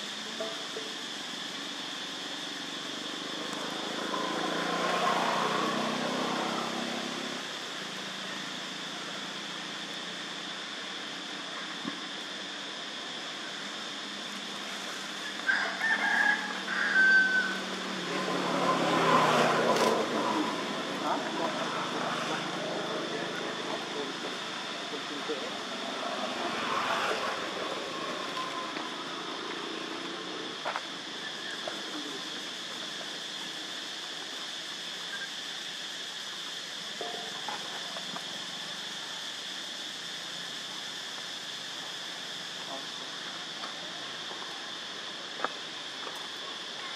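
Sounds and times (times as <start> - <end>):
background hiss: 0.0 - 46.9
insects droning: 0.0 - 46.9
motor vehicle passing: 3.2 - 7.6, 17.4 - 30.8
rooster crowing: 15.4 - 17.9.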